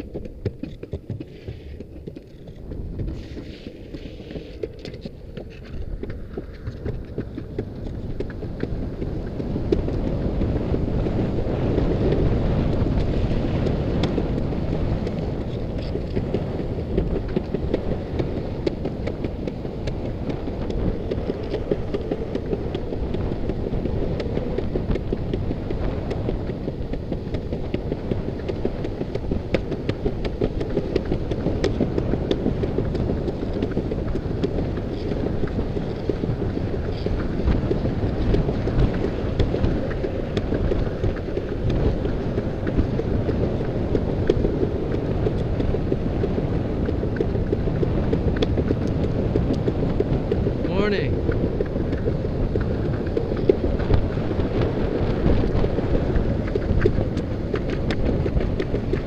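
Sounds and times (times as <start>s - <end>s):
longboard wheels rolling on pavement: 0.0s - 59.0s
wind rushing over microphone: 0.0s - 59.0s.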